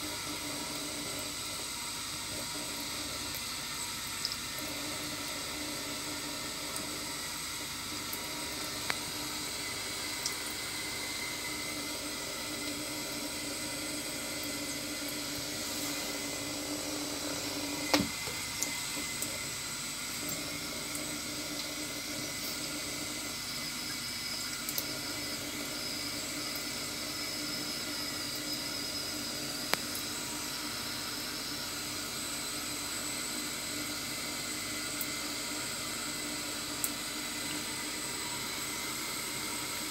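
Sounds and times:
tap running into steel sink: 0:17.8 - 0:19.1.

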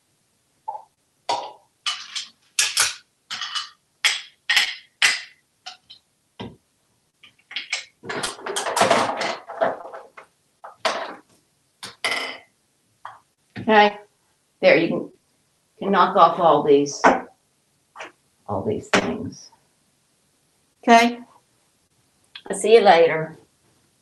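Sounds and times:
plastic toys clacking on countertop: 0:01.3 - 0:06.0, 0:07.3 - 0:11.2
toys rattling and clattering: 0:01.9 - 0:03.8, 0:07.4 - 0:11.2.

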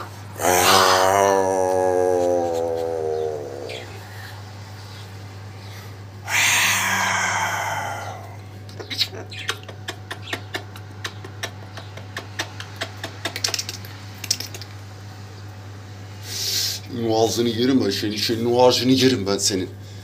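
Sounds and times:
cockatoo harsh call: 0:00.0 - 0:04.1, 0:06.2 - 0:08.4.

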